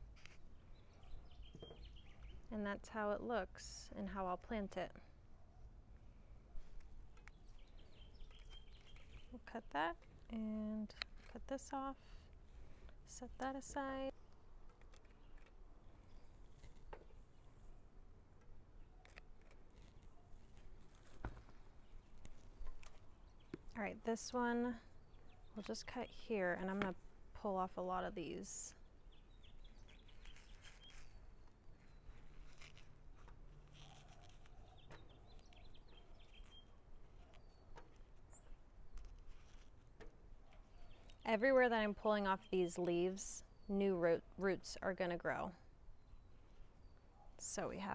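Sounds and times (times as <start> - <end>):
small birds chirping: 0.2 - 2.6, 6.6 - 10.6, 21.4 - 26.9, 28.2 - 39.6, 40.2 - 43.8.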